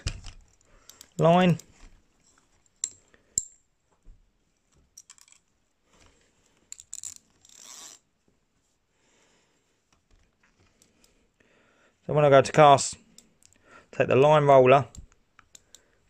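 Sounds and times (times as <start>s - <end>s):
fishing reel clicks: 6.7s - 8.0s.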